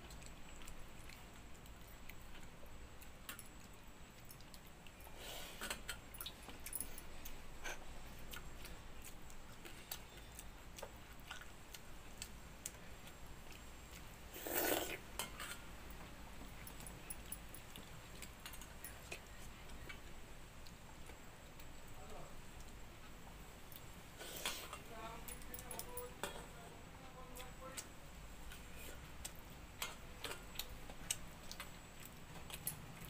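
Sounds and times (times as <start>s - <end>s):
wet mouth sounds: 14.4s - 15.0s.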